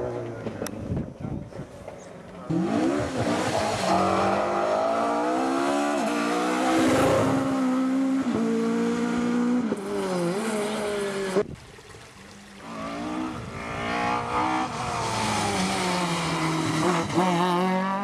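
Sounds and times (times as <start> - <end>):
rally car engine at full throttle: 0.0 - 11.5, 12.6 - 18.0.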